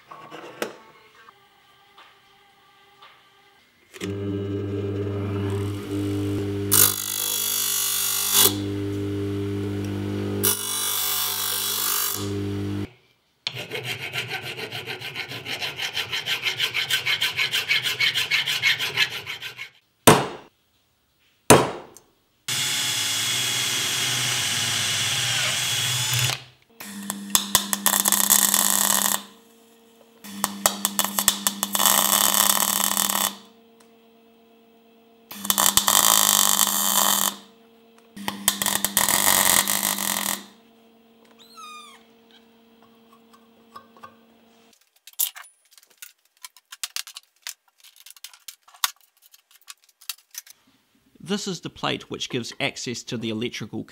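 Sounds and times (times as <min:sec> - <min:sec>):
bench grinder grinding steel: 0:04.0 - 0:12.9, 0:22.5 - 0:41.4
welder buzzing crackle: 0:04.0 - 0:12.9, 0:22.5 - 0:44.7.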